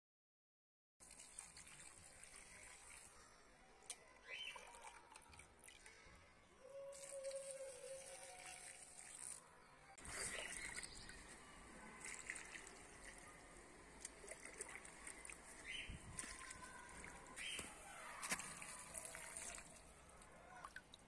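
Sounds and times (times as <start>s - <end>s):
liquid poured onto soil: 1.0s - 3.3s, 6.9s - 21.0s.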